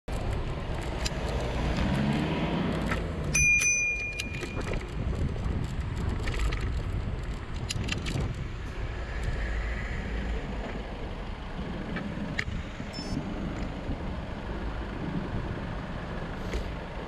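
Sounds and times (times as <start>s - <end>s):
wind: 0.0s - 17.0s
traffic noise: 0.1s - 17.0s
bicycle bell ding: 3.3s - 4.8s.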